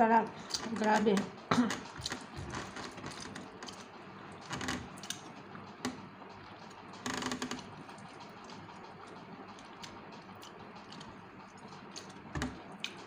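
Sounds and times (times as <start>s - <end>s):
chewing with mouth clicks: 7.6s - 13.0s.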